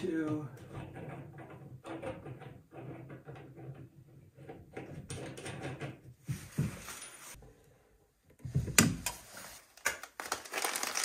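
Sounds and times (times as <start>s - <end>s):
plastic bag crinkling: 9.8s - 11.0s.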